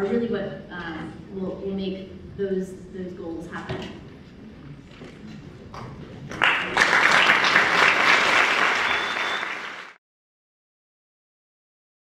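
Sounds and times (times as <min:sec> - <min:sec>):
audience applauding: 0:06.3 - 0:10.0.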